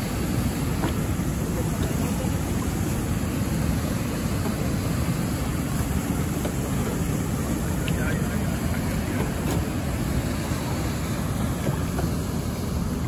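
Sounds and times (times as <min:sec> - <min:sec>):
rushing river water: 0:00.0 - 0:13.0.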